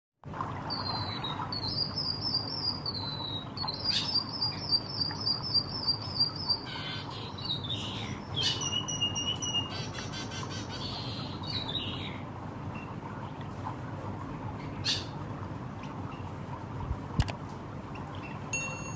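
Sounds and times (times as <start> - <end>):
small bird singing trills: 0.8 - 12.2
bird whistling: 7.8 - 9.8.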